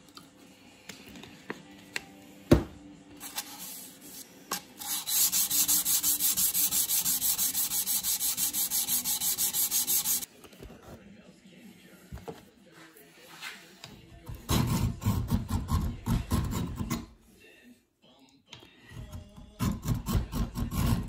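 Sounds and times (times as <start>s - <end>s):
metal wet-sanded by hand: 4.8s - 10.3s.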